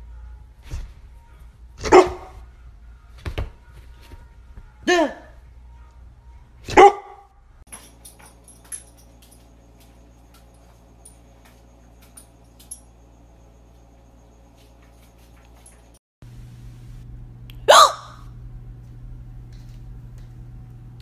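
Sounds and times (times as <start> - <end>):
faint steady hum: 0.0 - 6.7, 7.3 - 21.0
dog yelp: 1.8 - 2.4, 6.7 - 7.3, 17.7 - 18.3.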